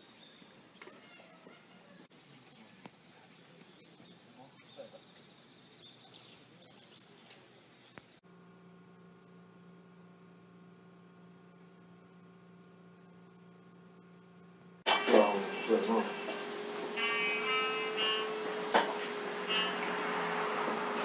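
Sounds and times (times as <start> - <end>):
faint bird chirps: 0.0 - 8.2
faint electrical hum: 0.0 - 21.0.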